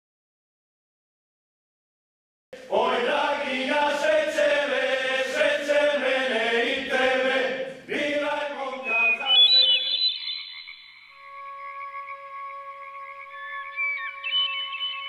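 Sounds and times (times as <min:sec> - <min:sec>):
choir chanting: 0:02.6 - 0:09.6
high held music notes: 0:11.2 - 0:15.0.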